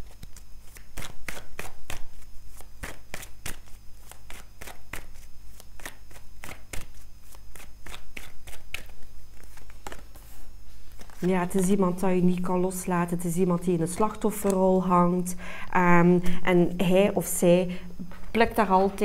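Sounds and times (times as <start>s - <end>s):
cards being shuffled: 0.0s - 11.8s.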